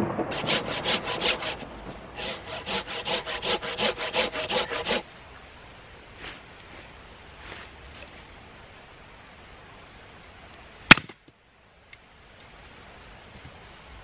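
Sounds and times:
hand saw cutting wood: 0.3s - 5.0s.

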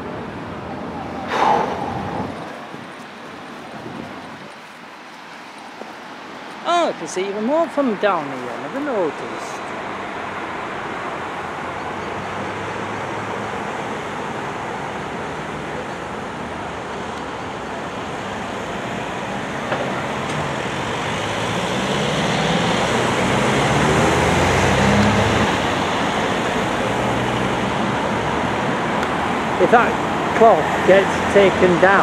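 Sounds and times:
road traffic noise: 0.0s - 32.0s
vehicle engine passing close: 1.0s - 2.8s, 20.1s - 28.5s.

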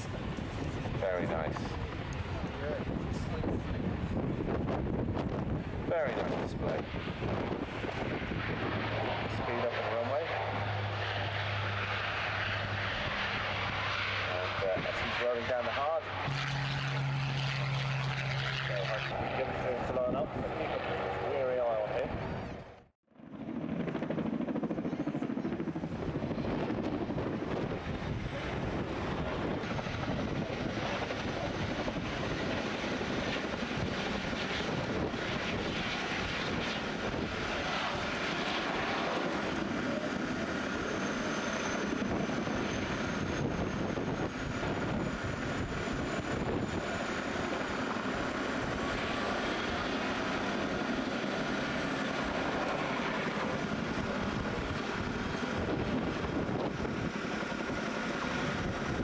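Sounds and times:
helicopter rotors and engines: 0.0s - 59.0s
thin high whine: 16.1s - 18.8s.

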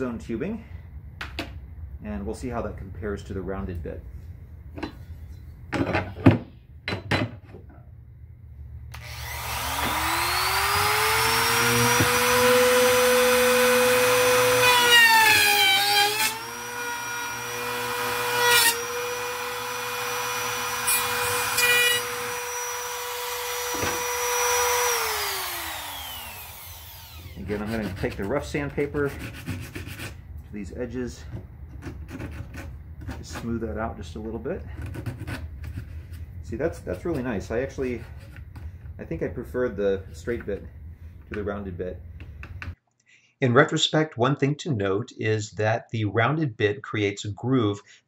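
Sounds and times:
trim router whining: 8.9s - 27.5s.

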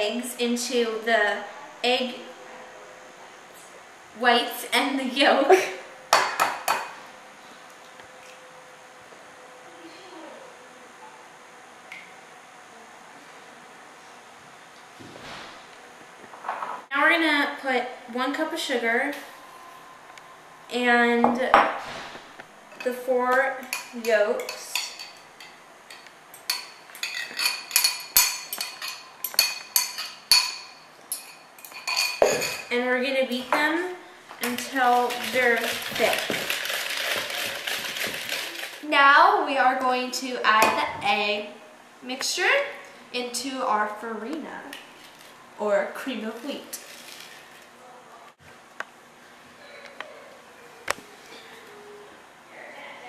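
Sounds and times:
low room hiss: 0.0s - 53.0s
utensil clinking against bowl: 23.6s - 32.7s.

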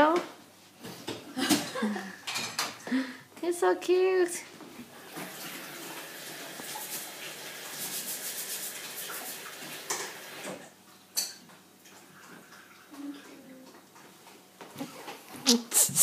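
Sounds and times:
dishes and cutlery clattering: 1.5s - 2.8s, 11.2s - 11.5s
running water: 4.9s - 10.8s.

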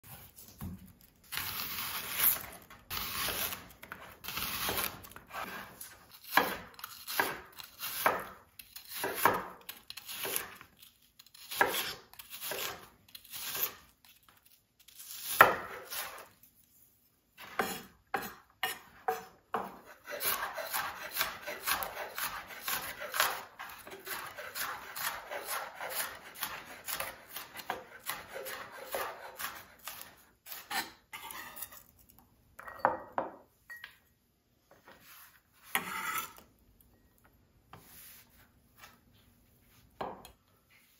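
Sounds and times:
knife chopping on wooden board: 3.2s - 9.6s, 15.4s - 16.2s, 17.4s - 30.9s.

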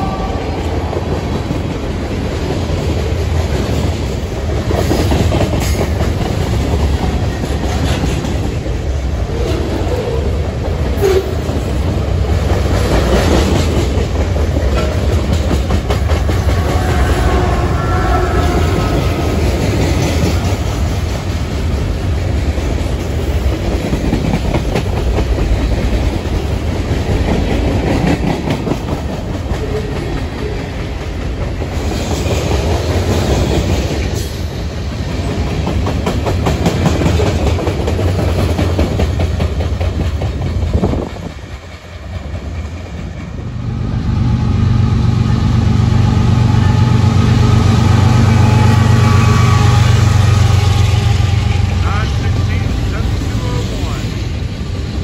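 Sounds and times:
diesel locomotive engine drone: 0.0s - 55.0s
wheels clacking over rail joints: 0.1s - 9.9s, 10.6s - 43.6s
freight cars rumbling past: 5.5s - 23.7s, 36.6s - 55.0s.

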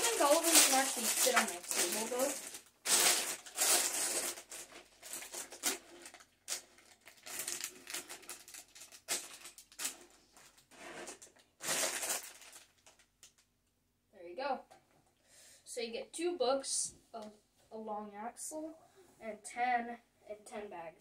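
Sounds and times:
plastic bags crinkling: 0.0s - 13.5s.

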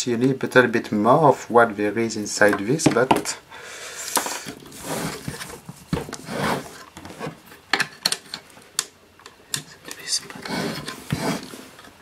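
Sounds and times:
tools scraping metal: 9.8s - 11.9s.

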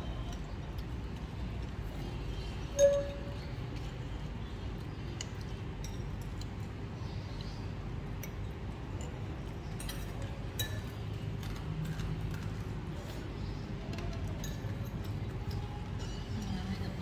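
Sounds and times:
low background noise: 0.0s - 17.0s
spoon and chopsticks clinking bowl: 2.7s - 3.9s, 5.2s - 6.6s, 8.2s - 12.5s, 14.0s - 17.0s.

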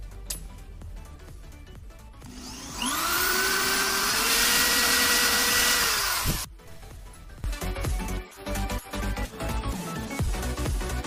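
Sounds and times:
electric drill boring plastic: 2.2s - 6.5s.

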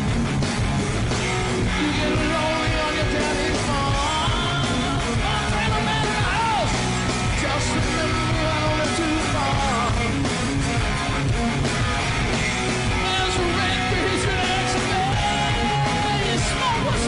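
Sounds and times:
bass guitar: 0.0s - 17.0s
drum kit: 0.0s - 17.0s
electric guitar: 0.0s - 17.0s
man singing: 1.6s - 10.3s, 13.0s - 17.0s.

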